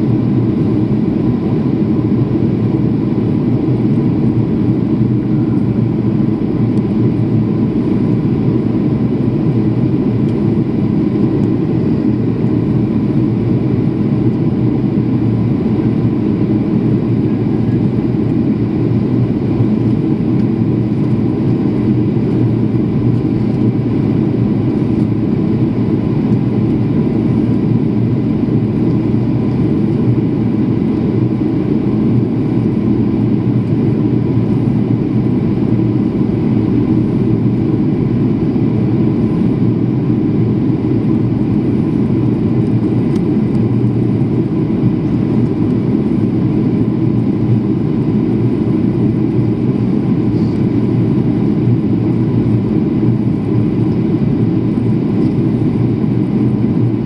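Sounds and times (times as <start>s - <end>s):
jet cabin engine roar: 0.0s - 57.0s.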